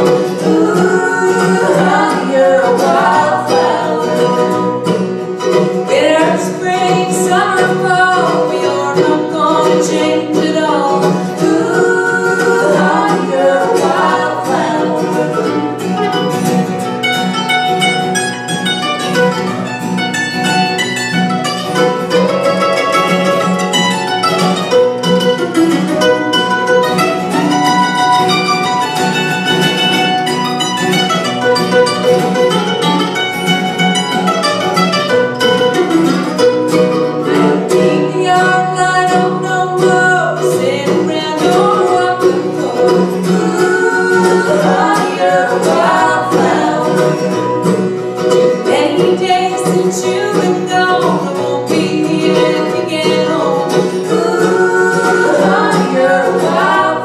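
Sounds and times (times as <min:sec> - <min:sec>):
person singing: 0:00.0 - 0:16.3, 0:37.2 - 0:57.0
acoustic guitar: 0:00.0 - 0:57.0
mandolin: 0:00.0 - 0:57.0.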